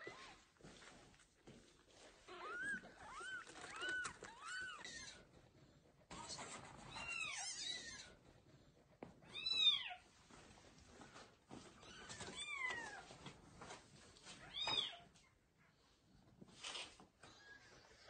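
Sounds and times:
kittens meowing: 2.3s - 5.2s, 6.1s - 8.2s.

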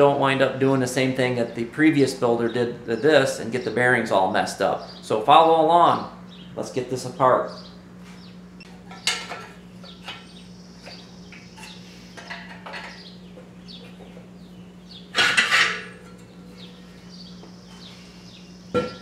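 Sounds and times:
metal tools clinking on engine case: 8.8s - 10.3s.

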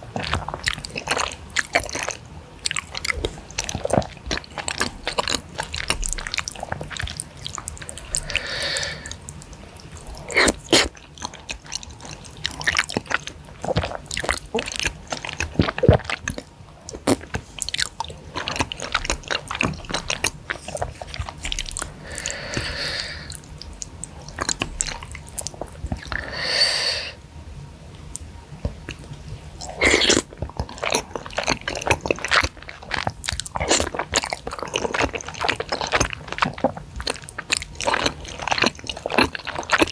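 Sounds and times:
wet chewing and mouth clicks: 0.0s - 26.4s, 28.1s - 39.9s
slurping noodles: 3.0s - 9.2s, 29.6s - 39.9s.

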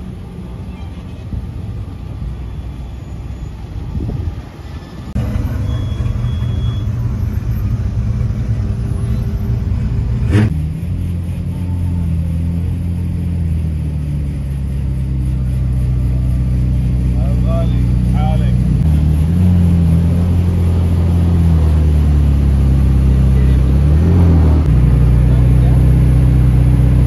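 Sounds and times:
car engines humming: 0.0s - 27.0s.

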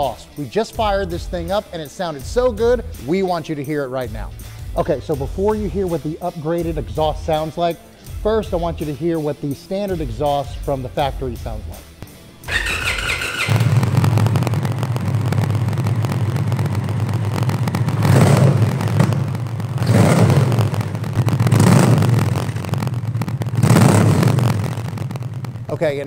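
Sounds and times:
motorcycle engine revving: 12.3s - 26.0s
motorcycle engine idling: 12.5s - 26.0s.

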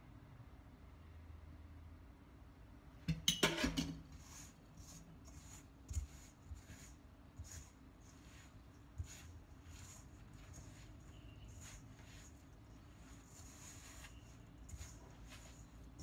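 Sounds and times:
metal spoon scraping steel bowl: 3.3s - 16.0s
hands kneading dough: 4.0s - 16.0s.

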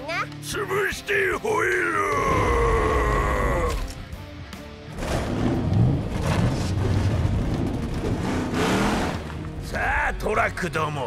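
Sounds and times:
monster truck engines revving: 4.9s - 9.4s.

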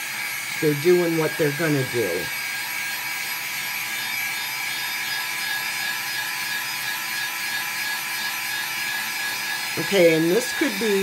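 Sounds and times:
handheld dryer blowing air: 0.0s - 11.0s.

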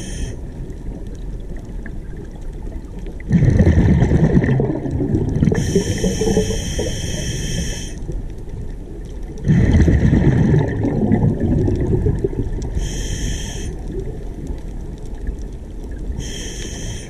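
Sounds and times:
regulator hissing inhales: 0.0s - 0.4s, 5.6s - 8.1s, 12.8s - 13.8s, 16.2s - 17.0s
exhaled bubbles underwater: 0.0s - 17.0s.

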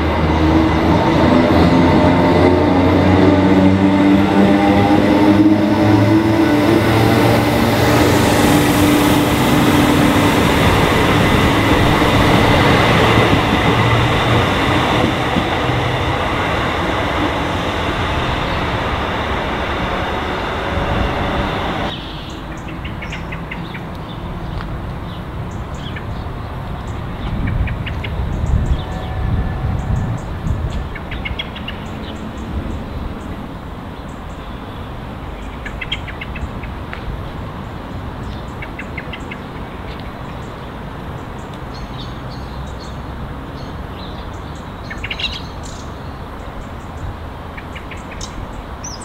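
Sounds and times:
train wheels rumbling on rails: 0.0s - 48.8s
train motor whine: 0.1s - 22.0s.

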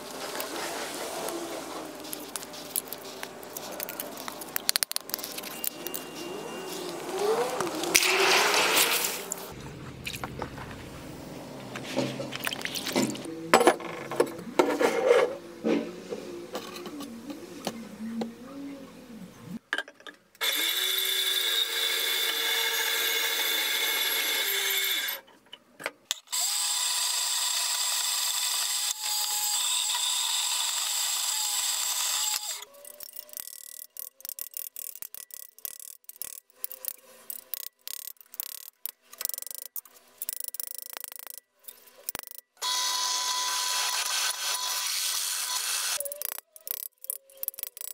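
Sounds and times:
band saw cutting metal: 42.6s - 46.0s.

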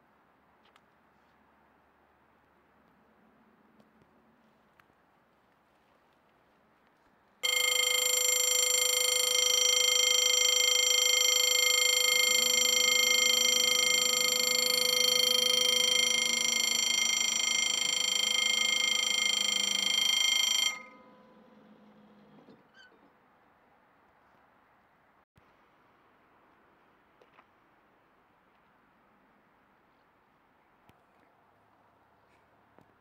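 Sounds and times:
level crossing warning bell: 7.4s - 22.4s.

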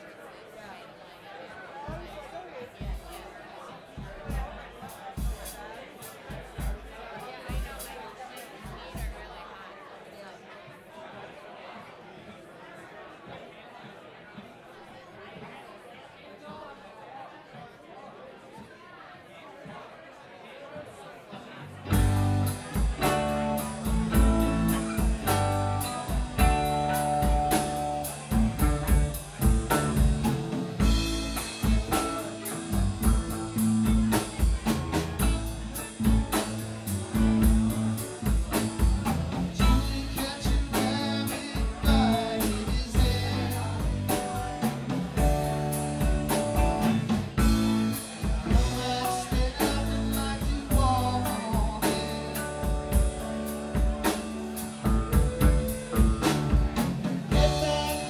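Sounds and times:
rock band playing: 21.7s - 58.0s.

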